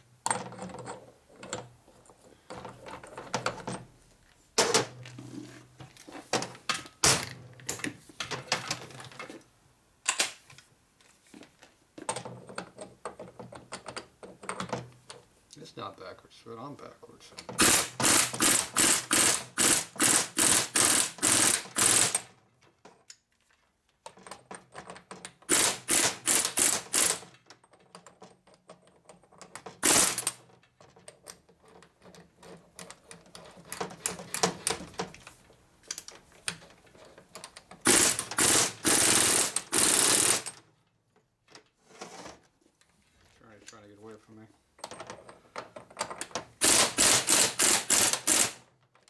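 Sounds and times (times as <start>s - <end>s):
ratchet wrench clicking: 17.6s - 22.2s, 37.9s - 40.5s, 46.6s - 48.6s.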